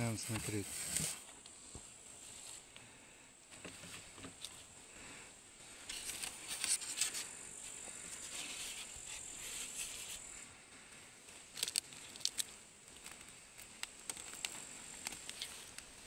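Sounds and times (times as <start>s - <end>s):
handling clicks and rustles: 3.5s - 4.8s, 11.0s - 16.0s.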